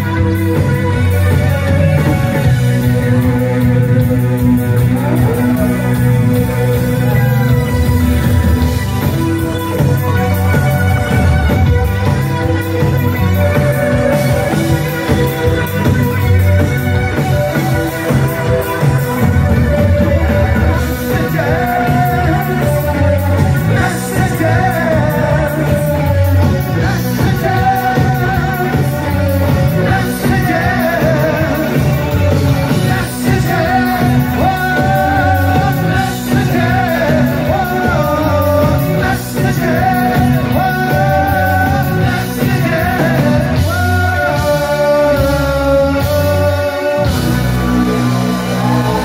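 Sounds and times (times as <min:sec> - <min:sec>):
live rock band with singer: 0:00.0 - 0:49.0.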